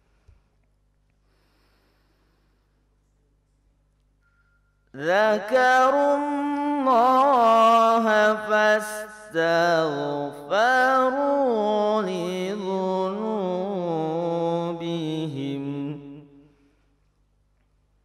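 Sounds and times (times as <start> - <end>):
person reciting in melismatic chant: 5.0 - 16.6.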